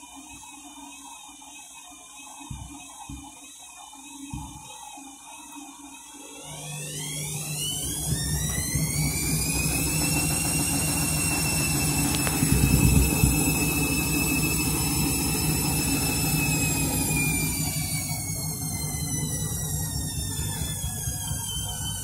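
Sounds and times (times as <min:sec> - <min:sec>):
washing machine motor whine: 0:00.0 - 0:22.0
deep rumble from drum: 0:07.7 - 0:22.0.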